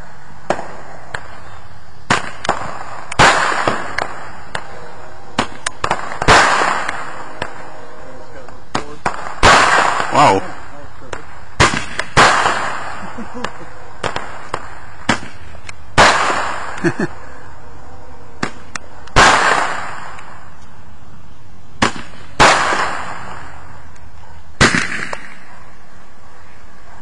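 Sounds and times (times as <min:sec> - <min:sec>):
small firework cracks: 0:00.4 - 0:01.5, 0:02.1 - 0:04.8, 0:05.4 - 0:07.6, 0:08.7 - 0:16.9, 0:18.4 - 0:20.4, 0:21.8 - 0:24.0, 0:24.6 - 0:25.5
fireworks bangs: 0:00.4 - 0:17.2, 0:18.4 - 0:20.5, 0:21.8 - 0:23.8, 0:24.6 - 0:25.5.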